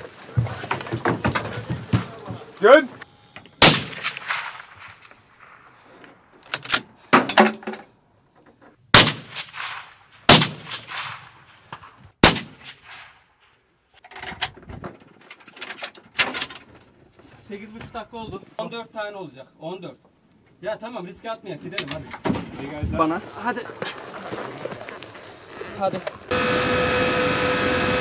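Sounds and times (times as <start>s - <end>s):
rifle shots with rolling echo: 3.6s - 5.8s, 8.9s - 13.8s.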